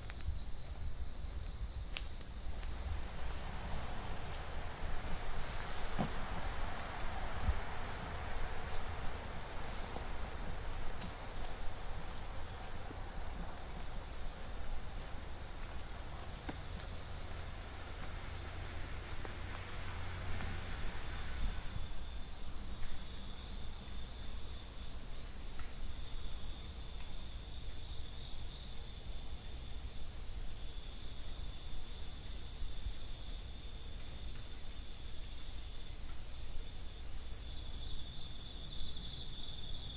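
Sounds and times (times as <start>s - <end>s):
crickets chirping: 0.0s - 39.9s.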